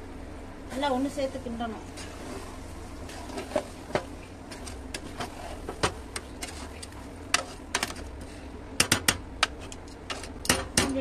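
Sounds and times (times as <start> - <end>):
steady low hum: 0.0 - 11.0
spatula scraping a metal pot: 2.0 - 3.8, 4.5 - 8.4.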